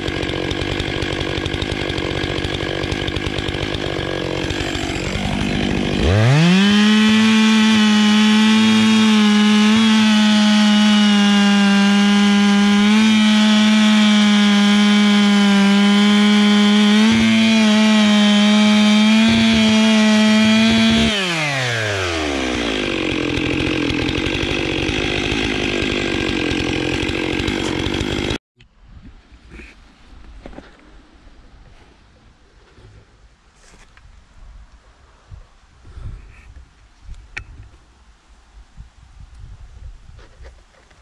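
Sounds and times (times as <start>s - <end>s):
chainsaw cutting wood: 0.0s - 28.4s.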